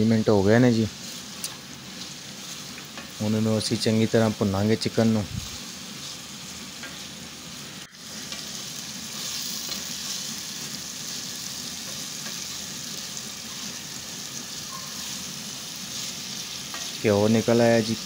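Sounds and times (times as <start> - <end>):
meat sizzling in a pot: 0.0 - 18.0
spatula stirring: 15.9 - 17.0.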